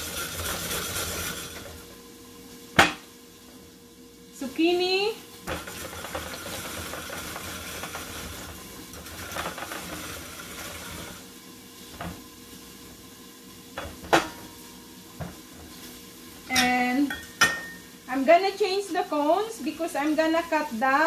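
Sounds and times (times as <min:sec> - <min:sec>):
food processor grating zucchini: 0:00.0 - 0:01.9, 0:05.5 - 0:11.3.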